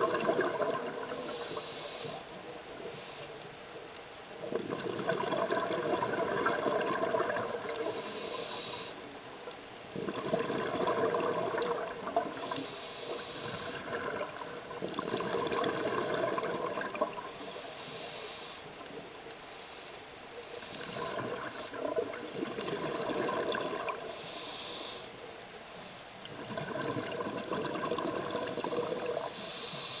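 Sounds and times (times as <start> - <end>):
exhaled air bubbles: 0.0 - 2.2, 4.4 - 9.0, 9.9 - 17.5, 20.7 - 24.2, 26.2 - 29.5
underwater regulator breathing hiss: 0.0 - 3.5, 6.8 - 9.1, 12.2 - 14.0, 14.6 - 26.1, 28.1 - 30.0.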